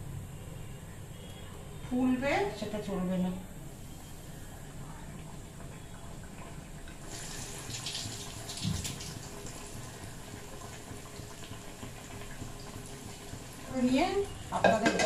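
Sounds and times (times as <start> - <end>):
oil sizzling in a wok: 7.0 - 15.0.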